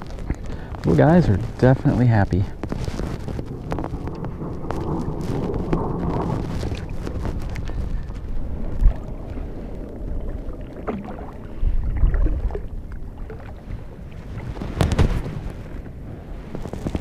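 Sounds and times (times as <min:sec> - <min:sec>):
water lapping against boat: 0:00.0 - 0:17.0
wind buffeting microphone: 0:00.0 - 0:17.0.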